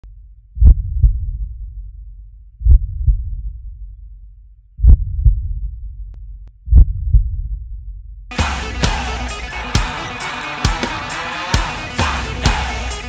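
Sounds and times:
heartbeat thumps: 0.6s - 1.8s, 2.6s - 3.8s, 4.8s - 6.0s, 6.6s - 7.9s.

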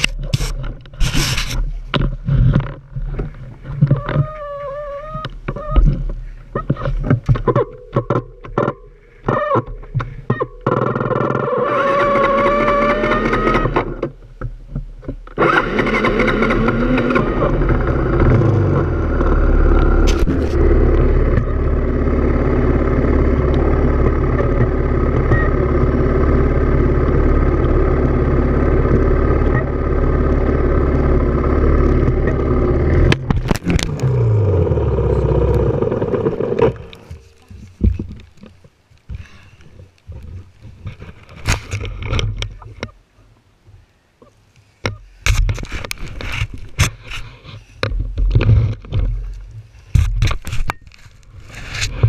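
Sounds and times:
motorcycle engine revving: 10.7s - 14.0s, 15.4s - 37.3s.

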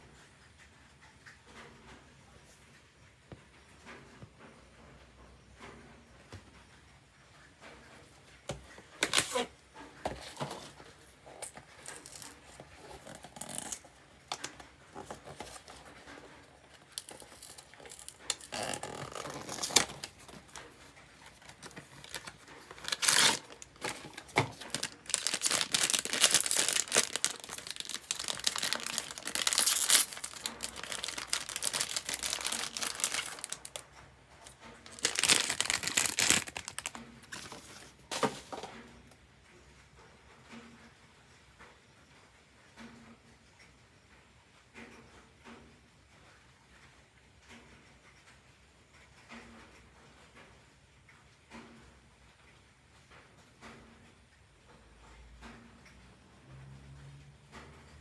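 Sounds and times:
foil crinkling and tearing: 8.9s - 38.6s
cardboard box rustling and clicking: 10.0s - 33.8s, 34.4s - 38.7s.

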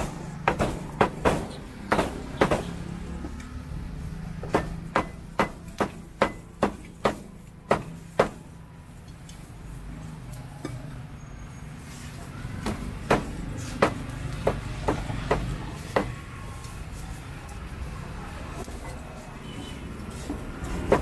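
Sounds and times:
cleaver chopping on wooden block: 0.5s - 2.8s, 4.4s - 8.4s, 12.6s - 16.2s.

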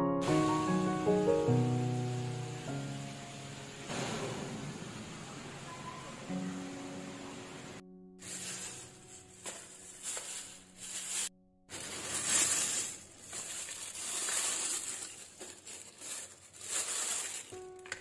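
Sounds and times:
plastic bag crinkling: 8.2s - 18.0s.

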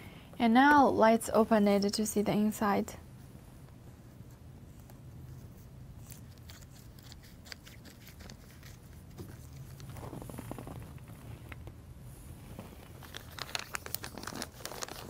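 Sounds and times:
plastic crackling: 12.8s - 15.0s.

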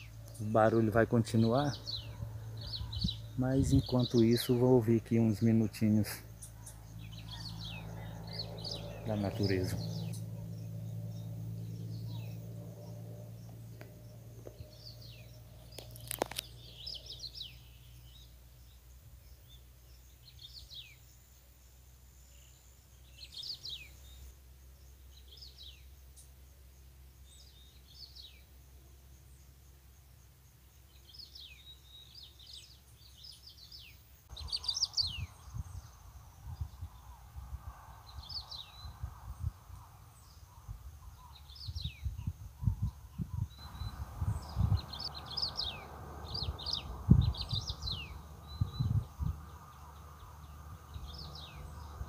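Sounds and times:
rustling and low rumble: 0.0s - 19.6s, 34.3s - 52.0s
distant highway traffic drone: 0.0s - 52.0s
small birds chirping: 0.0s - 52.0s.

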